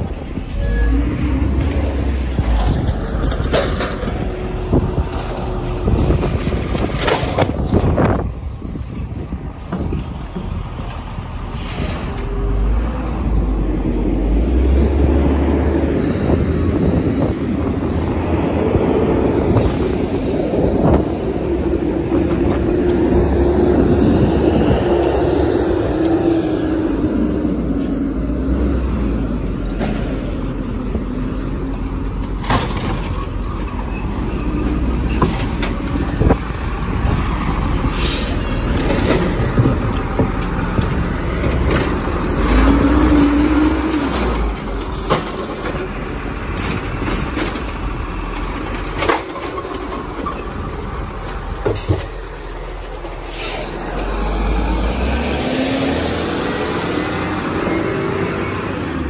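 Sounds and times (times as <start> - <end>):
garbage truck engine: 0.0 - 59.0
clanks and knocks: 1.6 - 4.4, 5.1 - 8.0, 32.2 - 33.9.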